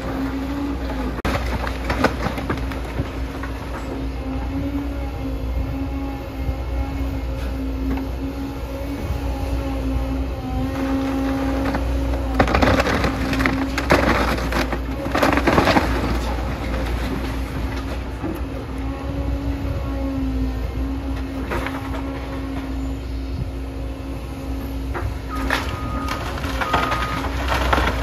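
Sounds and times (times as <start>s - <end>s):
wood cracking and splintering: 0.0s - 3.9s, 10.6s - 18.5s, 25.3s - 28.0s
excavator engine humming: 0.0s - 28.0s
debris crashing down: 0.9s - 3.6s, 11.0s - 18.0s, 25.3s - 28.0s.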